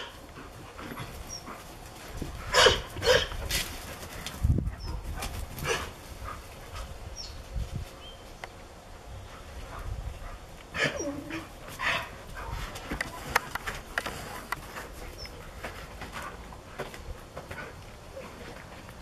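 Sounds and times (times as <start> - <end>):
dogs barking: 2.5 - 3.4.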